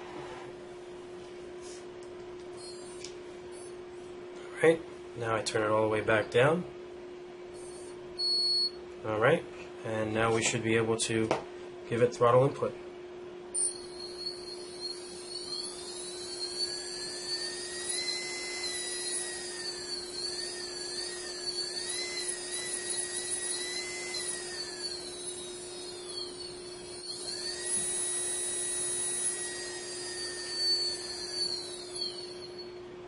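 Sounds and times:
steady low hum: 0.0 - 33.0
electric motor whine: 2.6 - 3.8, 13.6 - 33.0.

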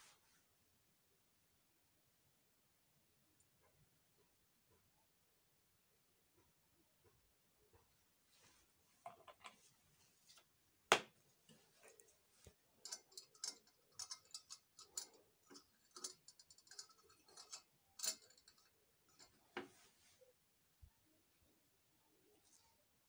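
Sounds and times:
metal rod clicking and tapping: 12.8 - 19.4.

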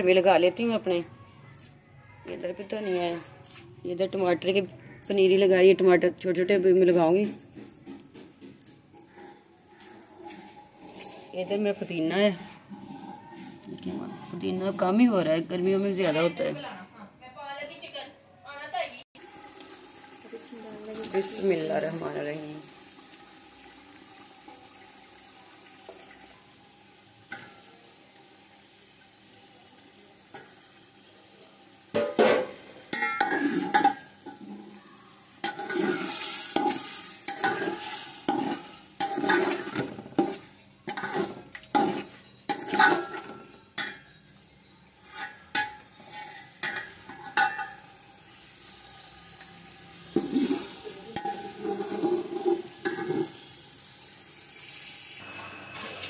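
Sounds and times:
metal spoon scraping pot: 8.9 - 15.3, 32.9 - 34.8, 35.4 - 47.8, 50.1 - 53.4.

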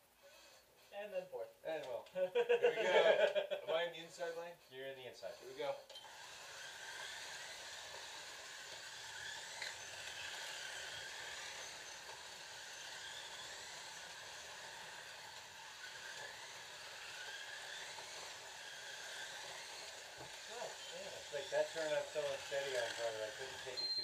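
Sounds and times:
faint motor whines: 4.1 - 24.0
slot cars whirring: 5.2 - 24.0.

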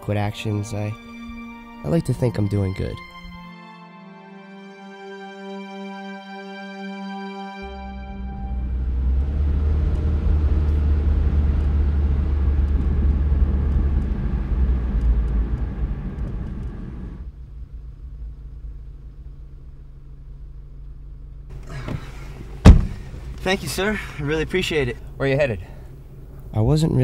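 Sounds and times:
engine and road rumble: 7.6 - 27.0
car idling hum: 7.9 - 27.0
car door shutting: 21.5 - 24.1.

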